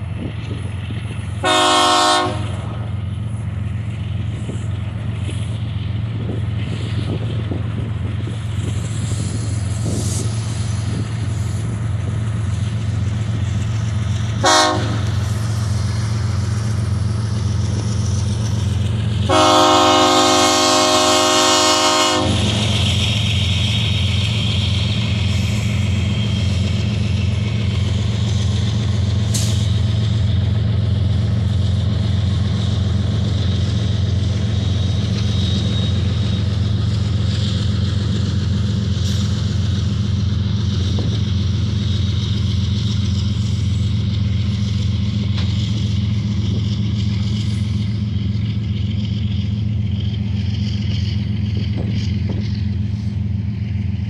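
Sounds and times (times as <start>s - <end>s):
low locomotive engine rumble: 0.0s - 54.0s
train air horn: 1.4s - 2.8s, 14.4s - 15.2s, 19.3s - 22.7s.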